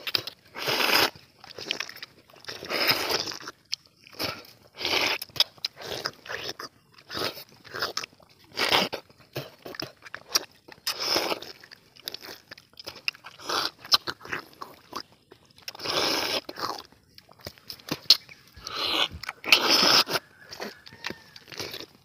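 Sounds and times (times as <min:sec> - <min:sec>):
people eating fruit: 0:00.0 - 0:22.0.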